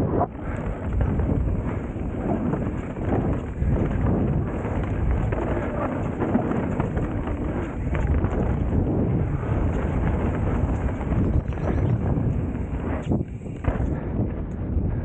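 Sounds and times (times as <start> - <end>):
tyre rumble: 0.0 - 15.0
wind buffeting microphone: 0.0 - 15.0
bike rattling and knocking: 0.3 - 15.0.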